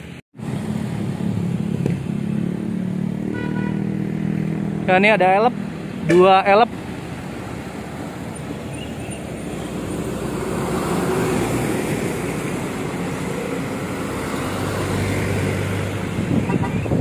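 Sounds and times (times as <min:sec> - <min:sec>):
truck engine hum: 0:00.0 - 0:17.0
car driving past: 0:08.7 - 0:16.6.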